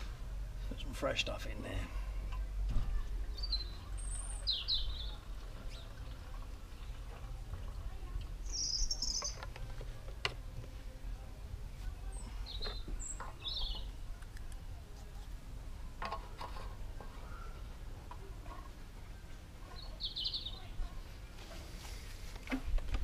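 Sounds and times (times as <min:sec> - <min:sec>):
birds chirping: 0:02.3 - 0:07.4, 0:08.1 - 0:09.8, 0:12.0 - 0:14.0, 0:19.0 - 0:21.0.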